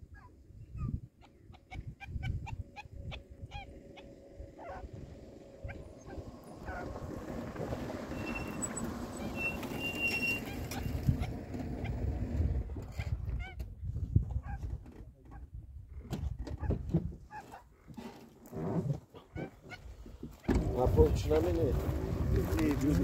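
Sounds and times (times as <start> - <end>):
low rumbling noise: 2.2 - 9.7, 20.5 - 23.0.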